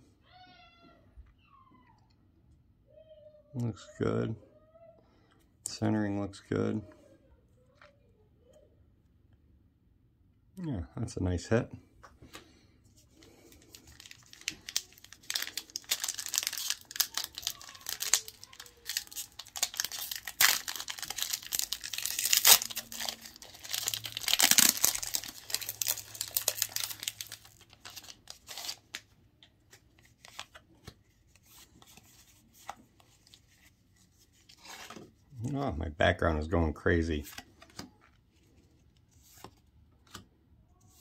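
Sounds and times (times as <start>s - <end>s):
foil wrapper crinkling and tearing: 13.2s - 29.1s.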